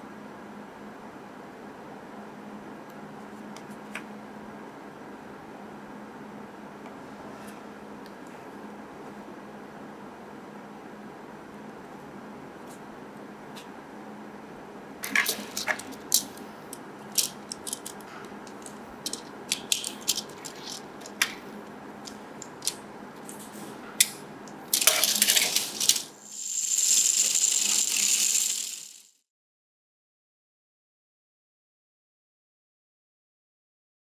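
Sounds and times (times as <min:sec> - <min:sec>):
plastic parts clicking: 0:15.0 - 0:21.4, 0:22.0 - 0:23.4, 0:24.7 - 0:26.1
high-pitched whir: 0:25.2 - 0:29.2.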